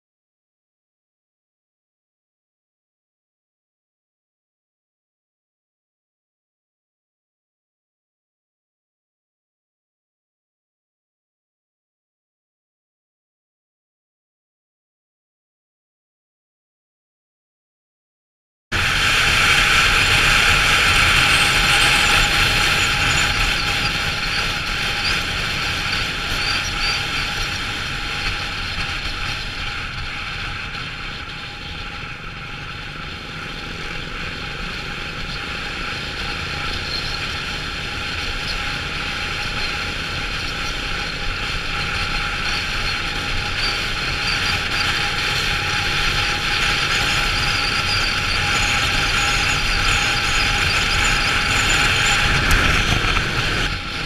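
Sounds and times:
rushing wind: 18.7s - 54.0s
motorcycle engine running: 18.8s - 54.0s.

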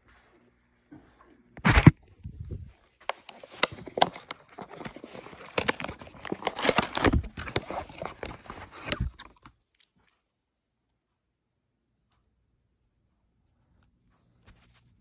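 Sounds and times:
plastic packaging rustling and crackling: 1.6s - 9.8s.

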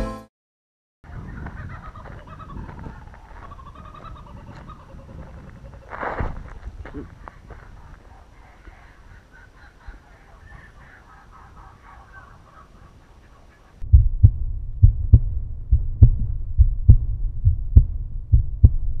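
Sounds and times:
deep heartbeat-like thumps: 13.8s - 19.0s.

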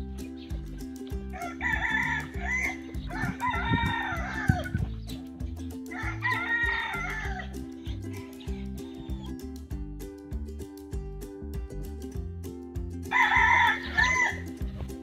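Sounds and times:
background music with beat: 0.0s - 15.0s
rooster crowing: 1.3s - 4.9s, 5.9s - 7.6s, 13.1s - 14.5s.

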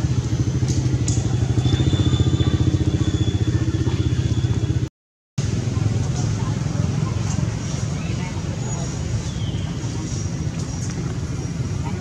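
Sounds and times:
small engine idling: 0.0s - 4.9s.

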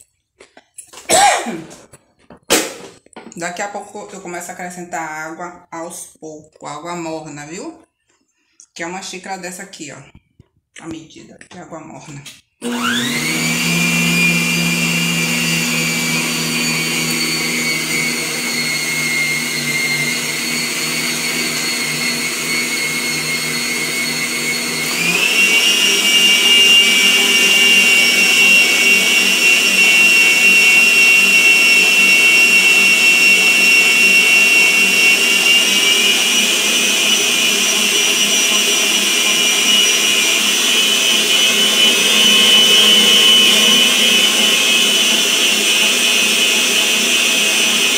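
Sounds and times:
stand mixer motor whining: 12.6s - 47.9s.

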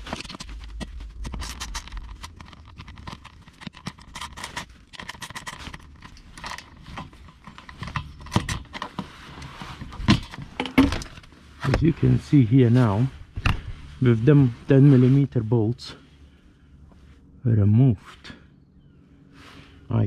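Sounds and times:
socket wrench clicking and scraping: 1.2s - 8.9s.

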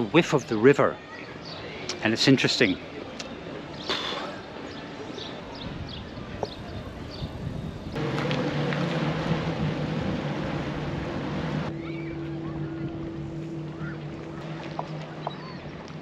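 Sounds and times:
harbour ambience: 0.0s - 16.0s
jet ski engines running: 6.2s - 16.0s
higher motor hum: 8.0s - 16.0s.

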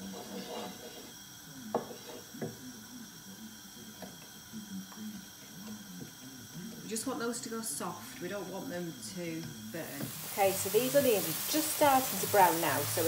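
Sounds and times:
onions sizzling in butter: 0.0s - 13.0s.

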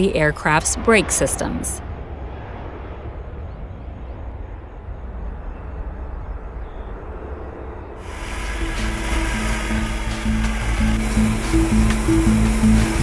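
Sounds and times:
jet aircraft rumble: 0.0s - 13.0s
hiss: 8.0s - 13.0s.

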